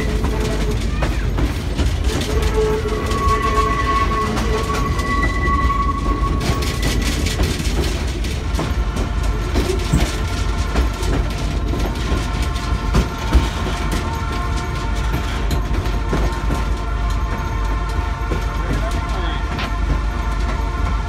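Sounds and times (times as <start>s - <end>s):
train wheels rumbling on rails: 0.0s - 21.0s
high wheel squeal: 2.0s - 7.8s.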